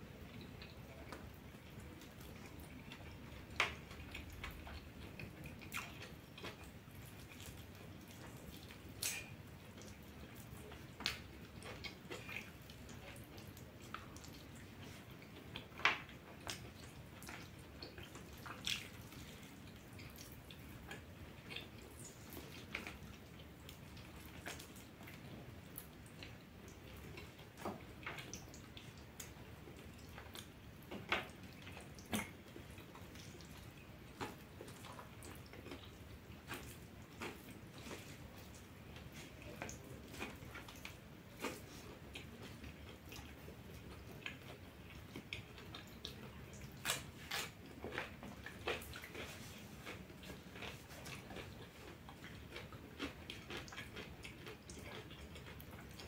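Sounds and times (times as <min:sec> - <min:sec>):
wet mouth smacks and chewing: 0:03.7 - 0:10.4, 0:44.2 - 0:56.0.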